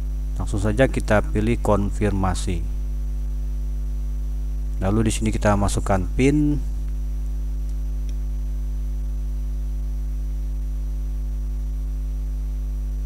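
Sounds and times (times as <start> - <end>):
electrical mains hum: 0.0 - 13.0
faint high-pitched whine: 0.0 - 13.0
faint ticks: 7.6 - 8.3.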